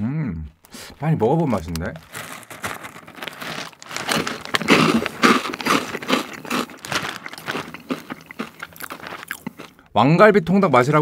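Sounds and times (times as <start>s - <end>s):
plastic snack bag crinkling: 0.9s - 9.9s
crunchy snack chewing: 1.3s - 9.9s.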